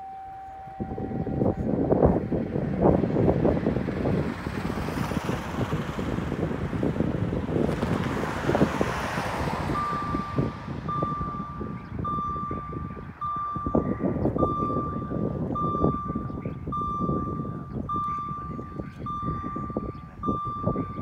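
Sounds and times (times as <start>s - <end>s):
crossing warning beeps: 0.0s - 2.9s, 9.6s - 21.0s
wind noise on microphone: 0.0s - 21.0s
car passing: 0.5s - 21.0s.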